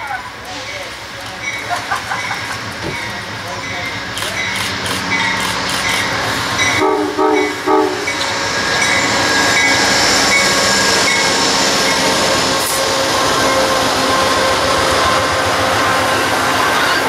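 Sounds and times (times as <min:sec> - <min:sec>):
train passing with rushing clatter: 0:00.0 - 0:17.0
train horn blasts: 0:06.7 - 0:08.2.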